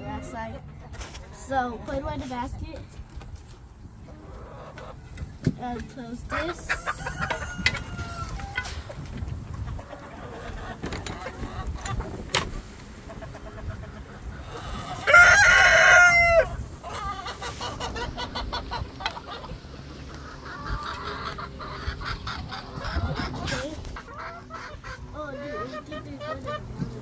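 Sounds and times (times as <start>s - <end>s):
hens clucking: 0.0s - 27.0s
rooster crowing: 6.8s - 8.6s, 14.9s - 16.6s.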